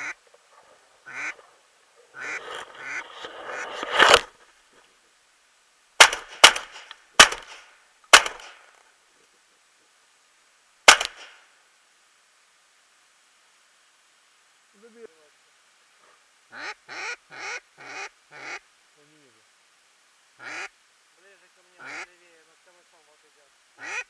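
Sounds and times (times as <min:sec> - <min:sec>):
ducks quacking: 0:00.0 - 0:00.2, 0:01.0 - 0:01.5, 0:02.1 - 0:04.3, 0:16.5 - 0:18.6, 0:20.4 - 0:20.7, 0:21.7 - 0:22.2, 0:23.8 - 0:24.0
shotgun shots: 0:06.0 - 0:08.7, 0:10.9 - 0:11.4.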